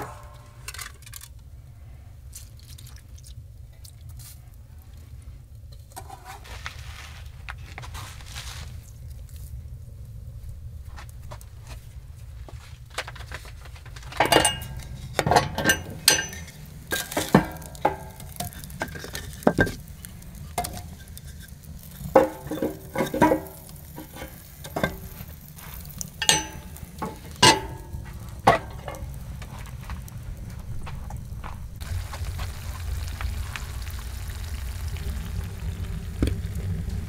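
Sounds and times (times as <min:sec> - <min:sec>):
steady low rumble: 0:00.0 - 0:06.0, 0:06.6 - 0:37.0
utensil clinking on metal pot: 0:14.2 - 0:29.2.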